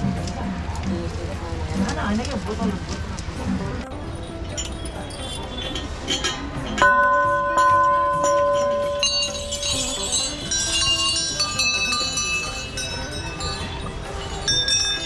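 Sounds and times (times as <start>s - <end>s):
higher bells clanging: 4.2s - 15.0s
temple bell ringing: 6.7s - 15.0s.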